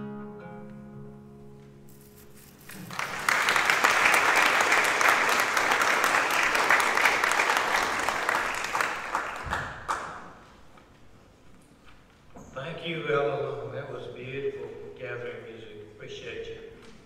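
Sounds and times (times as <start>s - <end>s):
congregation applauding: 2.5s - 10.6s.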